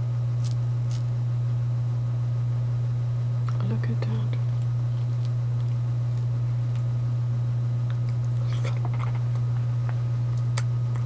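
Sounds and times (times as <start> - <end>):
low hum: 0.0 - 11.0
chewing fruit: 0.4 - 1.1, 3.4 - 7.0, 7.8 - 11.0
wet clicks of fruit pulled apart: 0.4 - 1.1.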